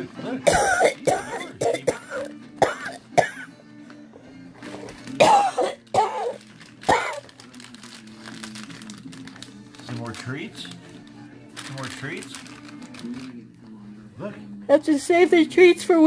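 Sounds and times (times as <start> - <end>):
soft background music: 0.0 - 16.0.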